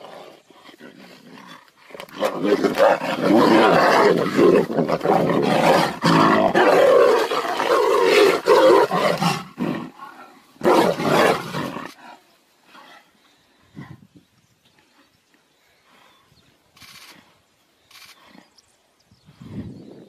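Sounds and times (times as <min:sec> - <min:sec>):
tigers roaring and snarling: 0:00.0 - 0:12.9.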